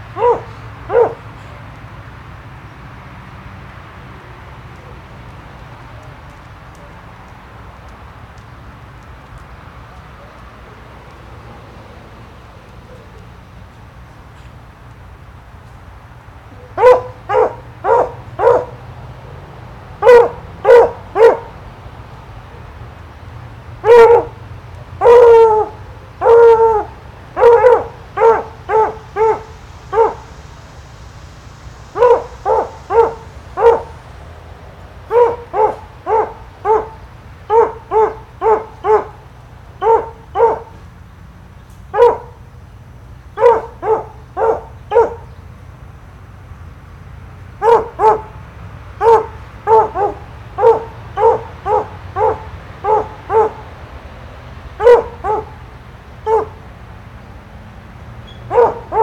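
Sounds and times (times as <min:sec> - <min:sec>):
dog barking loudly: 0:00.1 - 0:01.4, 0:16.5 - 0:21.6, 0:23.8 - 0:30.4, 0:31.8 - 0:34.1, 0:35.0 - 0:40.8, 0:41.9 - 0:42.4, 0:43.3 - 0:45.3, 0:47.6 - 0:53.8, 0:54.7 - 0:56.6, 0:58.4 - 0:59.0.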